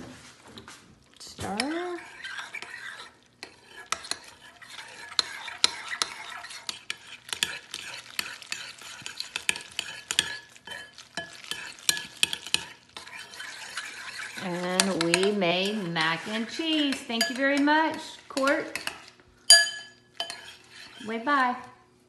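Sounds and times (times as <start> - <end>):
noodles squishing: 4.7 - 16.4
spoon clinking against bowl: 16.9 - 20.6.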